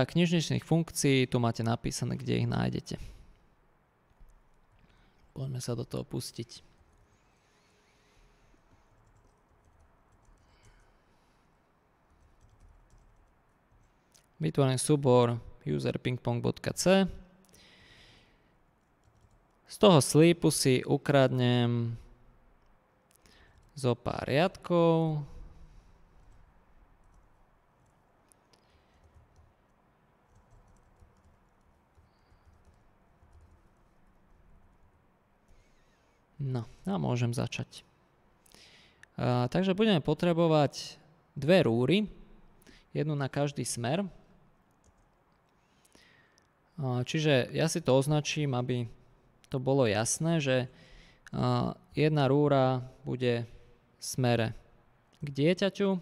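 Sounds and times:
low room hum: 0:00.0 - 0:56.0
faint keyboard typing: 0:04.1 - 0:05.4, 0:06.6 - 0:14.4, 0:17.4 - 0:20.2, 0:22.5 - 0:23.8, 0:25.4 - 0:36.2, 0:44.5 - 0:46.6.

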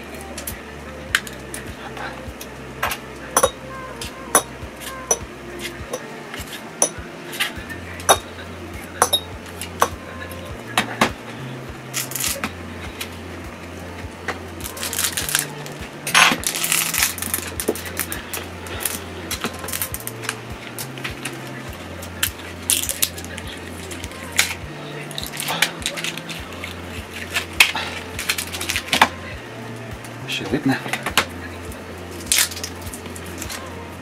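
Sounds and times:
background music bass line: 0:00.0 - 0:34.0
metal tool tapping phone parts: 0:02.9 - 0:03.6, 0:09.0 - 0:10.0.

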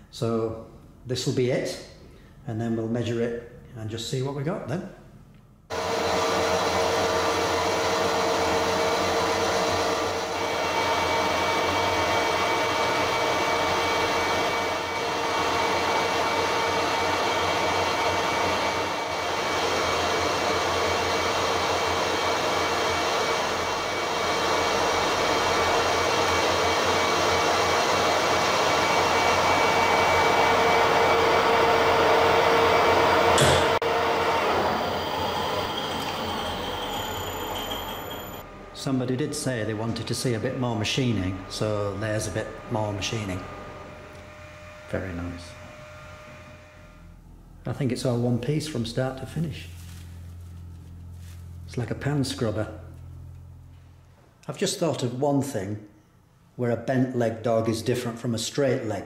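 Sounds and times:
lathe cutting metal whine: 0:05.7 - 0:49.6.

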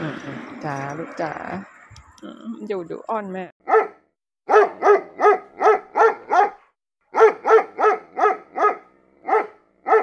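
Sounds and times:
dog barking: 0:03.6 - 0:10.0.

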